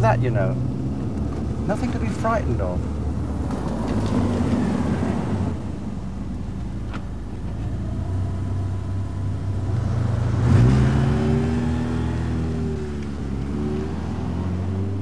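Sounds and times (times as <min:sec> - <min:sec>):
car driving past: 0:07.8 - 0:15.0.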